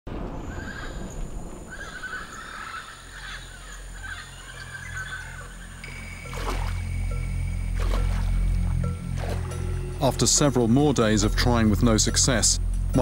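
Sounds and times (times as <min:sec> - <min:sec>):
high insect buzz: 0:01.8 - 0:10.0
low musical drone: 0:04.0 - 0:13.0.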